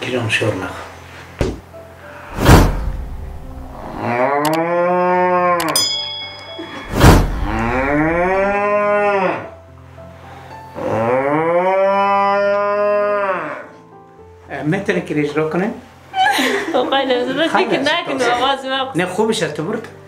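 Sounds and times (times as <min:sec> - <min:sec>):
man imitating cow moo: 0:03.8 - 0:05.8, 0:07.4 - 0:09.5, 0:10.8 - 0:13.7.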